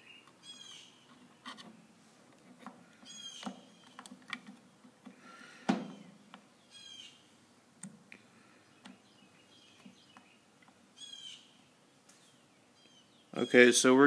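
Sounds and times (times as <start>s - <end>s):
bird chirping: 0.0s - 1.6s, 3.0s - 4.3s, 5.8s - 7.4s, 8.1s - 13.8s
test probes clicking and tapping: 8.8s - 9.1s.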